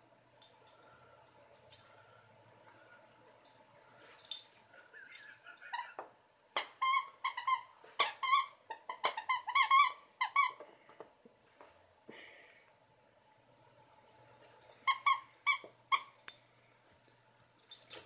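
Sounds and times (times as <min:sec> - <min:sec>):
squeaky toy squeaks: 0:06.6 - 0:10.6, 0:14.9 - 0:16.1.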